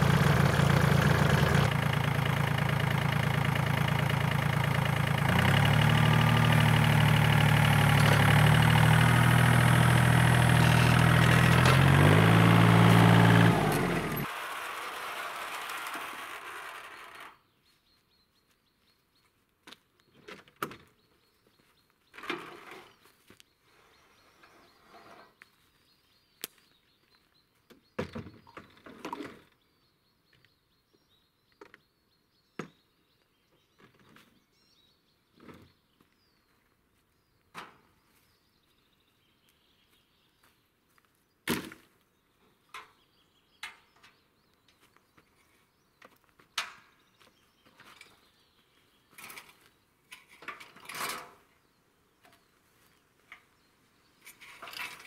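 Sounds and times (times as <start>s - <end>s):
engine running: 0.0s - 17.4s.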